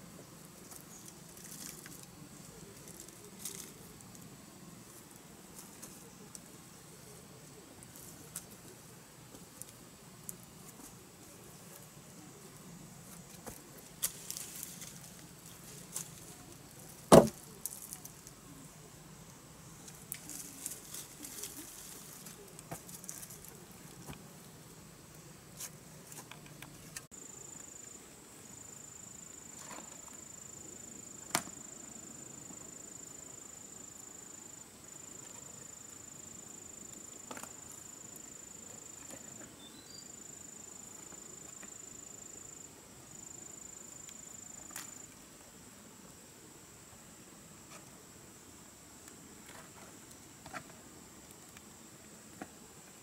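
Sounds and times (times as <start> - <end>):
high insect drone: 0.0 - 53.0.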